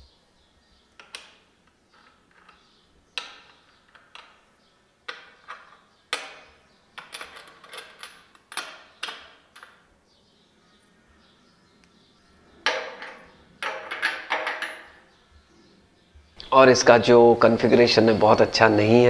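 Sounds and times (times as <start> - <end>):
spanner clinking on bolts: 5.1 - 9.8, 12.7 - 15.0.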